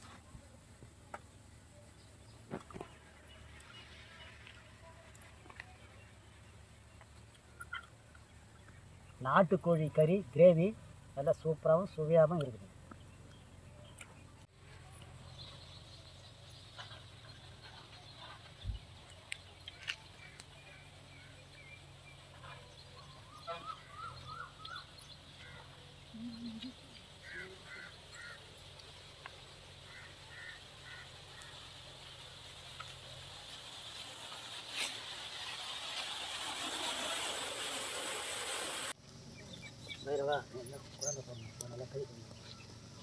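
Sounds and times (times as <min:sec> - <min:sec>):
short bird calls: 0:22.4 - 0:28.5, 0:29.8 - 0:31.7.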